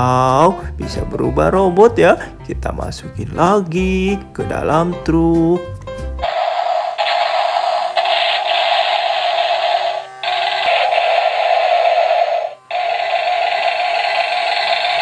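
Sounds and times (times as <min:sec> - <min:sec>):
toy electronic sound effects: 0:06.2 - 0:15.0.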